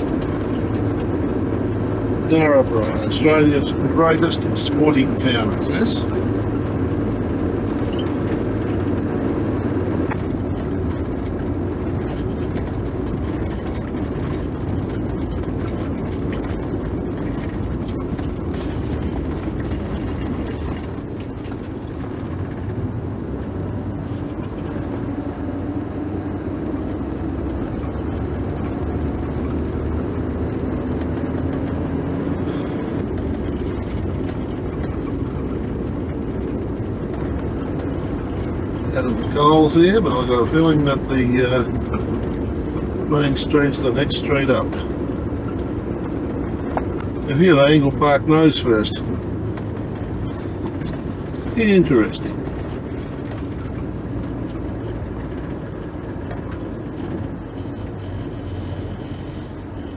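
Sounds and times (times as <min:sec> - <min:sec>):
car engine and road noise: 0:00.0 - 0:59.9.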